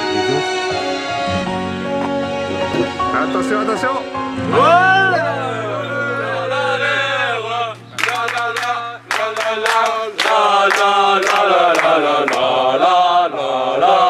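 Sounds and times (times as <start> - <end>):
men chanting in unison: 4.5 - 14.0
rhythmic hand claps: 7.8 - 12.7.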